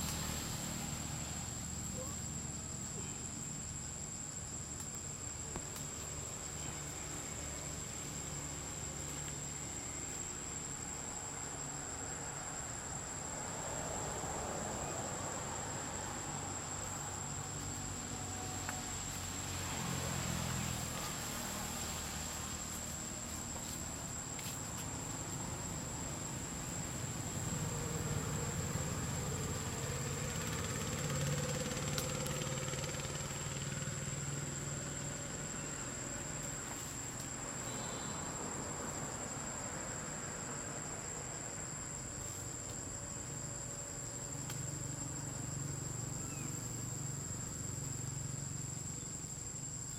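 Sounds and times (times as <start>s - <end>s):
low engine hum: 14.1s - 37.5s.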